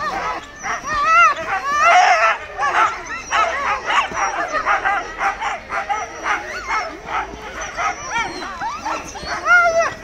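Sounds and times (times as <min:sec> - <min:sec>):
sled dogs barking and yipping: 0:00.0 - 0:10.0.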